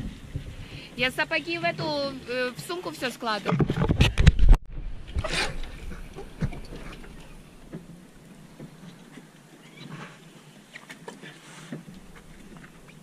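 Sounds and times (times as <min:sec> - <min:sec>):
faint wind: 0:00.0 - 0:13.0
sea noise: 0:00.0 - 0:13.0
faint squeaks from boat gear: 0:05.2 - 0:13.0.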